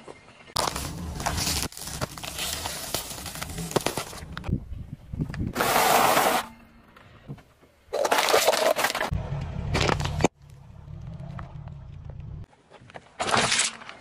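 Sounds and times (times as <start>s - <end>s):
packages crunching under car tyre: 0.6s - 4.3s
low rumble: 9.1s - 12.5s.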